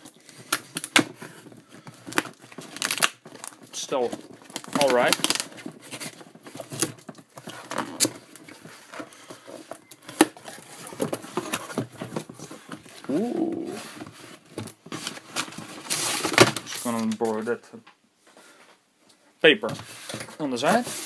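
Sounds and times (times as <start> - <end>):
cardboard rustling and scraping: 0.1 - 17.5, 19.7 - 21.0
brief rising voice-like sound: 13.1 - 13.9.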